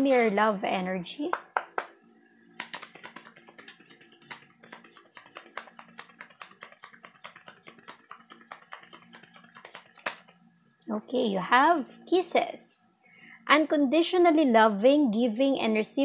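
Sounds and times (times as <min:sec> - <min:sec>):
cards being shuffled: 0:00.0 - 0:00.4, 0:02.6 - 0:10.4.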